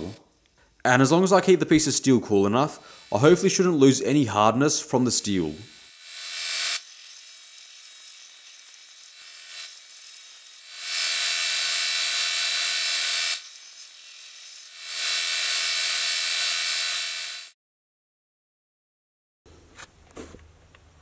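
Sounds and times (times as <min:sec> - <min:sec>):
file grinding on belt sander: 0:02.6 - 0:04.0, 0:05.3 - 0:17.5
belt sander running: 0:02.8 - 0:03.9, 0:05.3 - 0:17.5.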